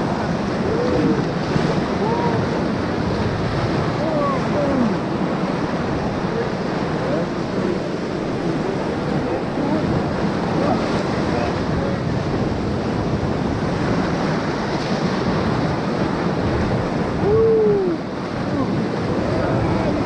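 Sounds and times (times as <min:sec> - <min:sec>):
whitewater rushing: 0:00.0 - 0:20.0
person shouting: 0:02.0 - 0:02.6, 0:17.2 - 0:18.0.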